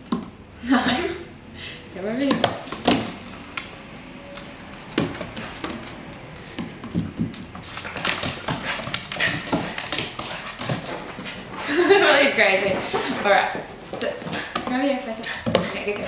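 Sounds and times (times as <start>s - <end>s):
puppy claws clicking on wood floor: 6.6s - 11.4s
collar tag jingling: 7.5s - 16.0s.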